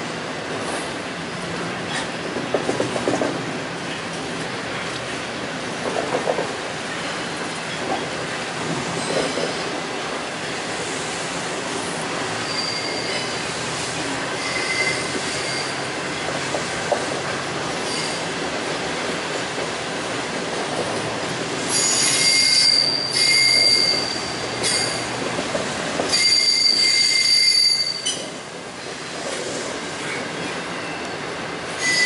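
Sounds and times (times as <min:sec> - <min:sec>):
wheels rumbling on rail: 0:00.0 - 0:32.0
high-pitched wheel squeal: 0:12.4 - 0:13.4, 0:14.4 - 0:15.8, 0:21.7 - 0:25.0, 0:26.1 - 0:28.2, 0:31.8 - 0:32.0.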